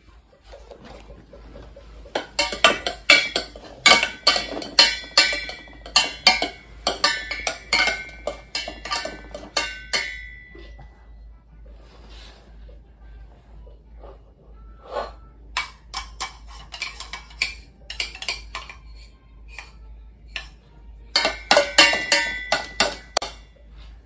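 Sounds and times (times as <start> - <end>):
wooden spoon clanking in saucepan: 2.1 - 10.8, 21.2 - 23.5.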